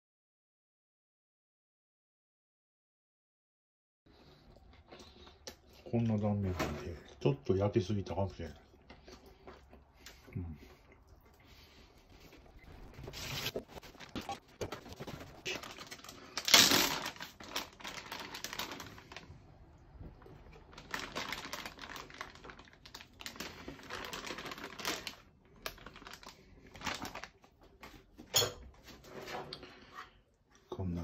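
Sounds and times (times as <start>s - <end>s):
plastic bag crinkling: 12.2s - 28.0s.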